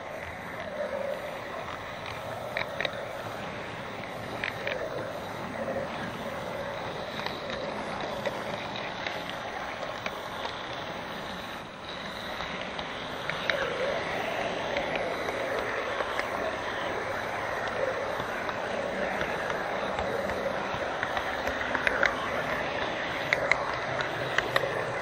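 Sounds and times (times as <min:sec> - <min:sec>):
model train rolling on track: 0:00.0 - 0:25.0
light clicks: 0:00.2 - 0:25.0.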